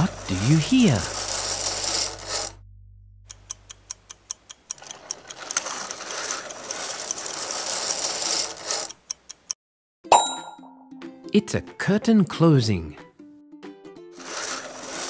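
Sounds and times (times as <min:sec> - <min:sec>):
curtain sliding along rail: 0:00.0 - 0:02.5, 0:05.3 - 0:08.9, 0:14.1 - 0:15.0.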